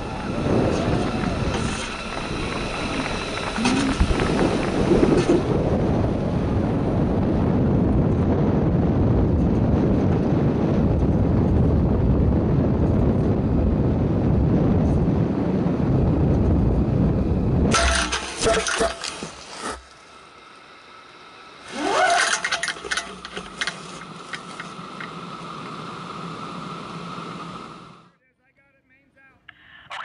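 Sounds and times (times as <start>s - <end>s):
rushing rumbling wind: 0.0s - 18.4s.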